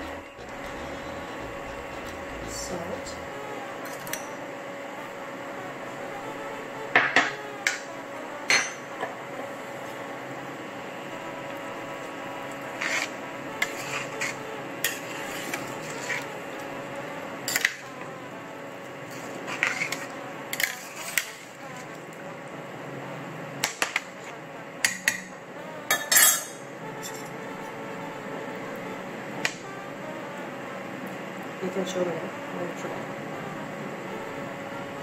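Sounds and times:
steady hum: 0.0s - 35.0s
metal spoon scraping a steel pot: 12.8s - 16.3s, 19.1s - 21.6s, 25.9s - 27.3s
spoon clatter: 25.9s - 27.3s.

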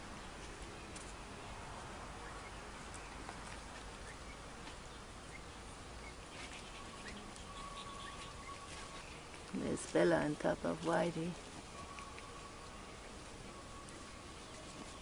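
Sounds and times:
faint steady tone: 0.0s - 15.0s
low background hiss and rumble: 0.0s - 15.0s.

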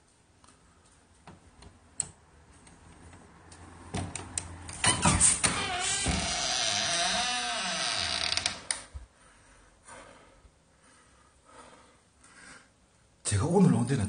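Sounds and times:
wooden door creaking open: 4.7s - 8.9s.

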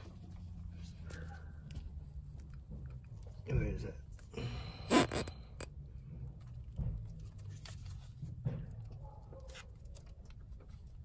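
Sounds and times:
low steady rumble: 0.0s - 11.0s.

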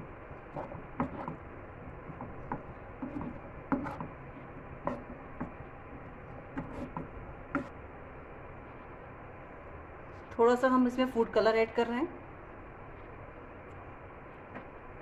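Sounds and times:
steady low hiss: 0.0s - 15.0s
spatula tapping and scraping pan: 0.5s - 4.2s, 4.8s - 5.6s, 6.5s - 7.8s.

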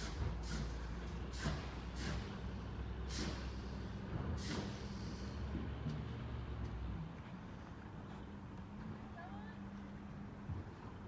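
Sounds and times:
air brake hisses: 0.0s - 5.5s
truck engine rumbling: 0.0s - 10.7s.

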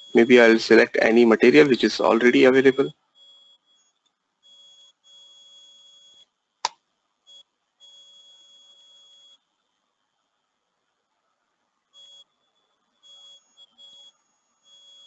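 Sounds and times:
high-pitched electronic whine: 0.0s - 6.3s.

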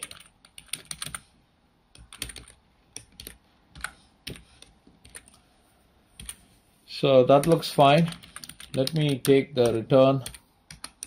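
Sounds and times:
computer keyboard typing: 0.0s - 1.3s, 1.9s - 5.4s, 6.2s - 6.4s, 7.3s - 11.0s.

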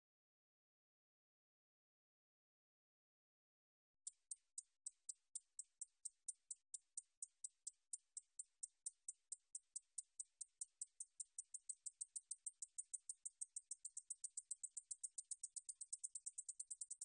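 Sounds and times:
katydid ticking song: 4.0s - 17.0s.

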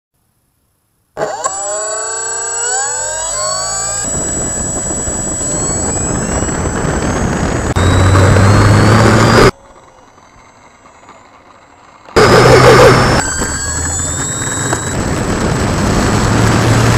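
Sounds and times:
faint hum: 0.2s - 15.8s
electric motor whine: 1.2s - 16.9s
propeller wash and wind rushing: 3.4s - 9.5s, 12.2s - 16.9s.

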